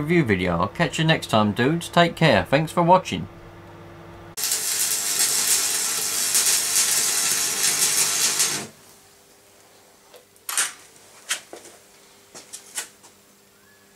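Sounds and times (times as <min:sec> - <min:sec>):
arc welding crackling sizzle: 0:04.3 - 0:11.1.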